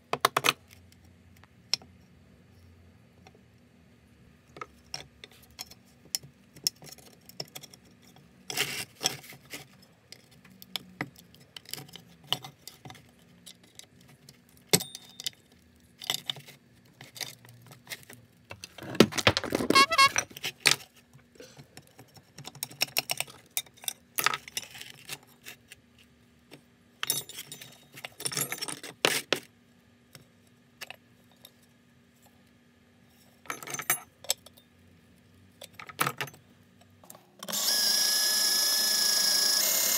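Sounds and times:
pitched horn burst: 19.7s - 20.2s.

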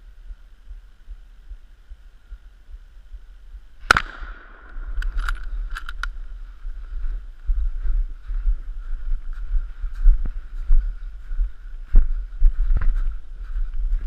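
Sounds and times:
rifle shot echoing: 3.8s - 5.9s
sharp clicks: 3.9s - 6.2s.

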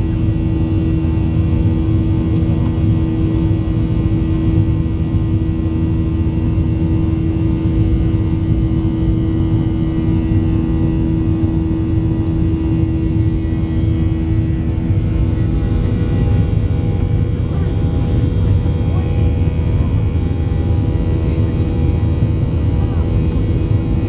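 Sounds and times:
airflow roar: 0.0s - 24.0s
jet engine drone: 0.0s - 24.0s
steady hum: 0.0s - 24.0s.

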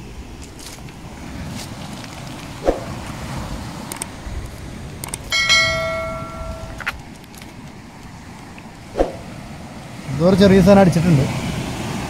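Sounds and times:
short clicks: 5.0s - 5.3s
bright bell chime: 5.3s - 6.9s.

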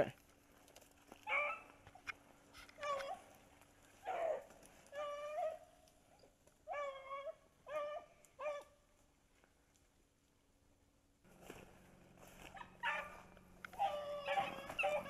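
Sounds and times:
distant beagles baying: 1.2s - 8.8s, 11.7s - 15.0s.

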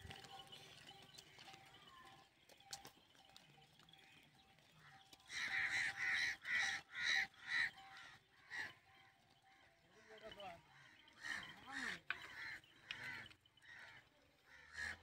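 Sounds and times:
crow cawing: 4.8s - 8.9s, 9.8s - 15.0s.

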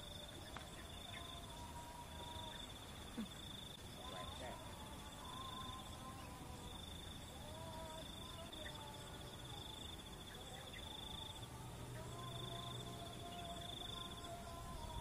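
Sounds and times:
faint distant voices: 0.0s - 15.0s
insect trilling: 0.0s - 15.0s.

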